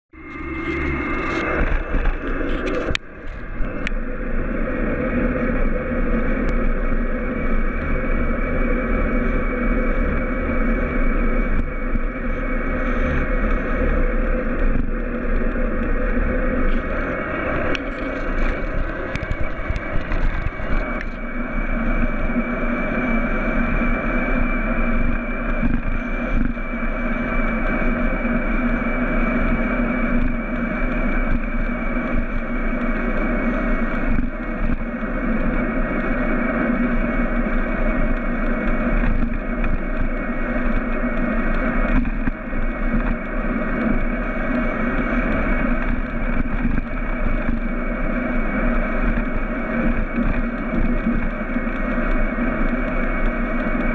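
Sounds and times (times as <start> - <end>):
road noise: 0.1 - 53.9
steady motor whine: 0.1 - 53.9
wind noise on microphone: 0.2 - 53.9.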